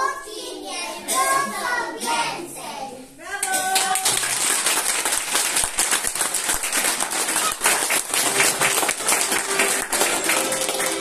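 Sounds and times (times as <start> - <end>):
audience applauding: 3.9 - 11.0.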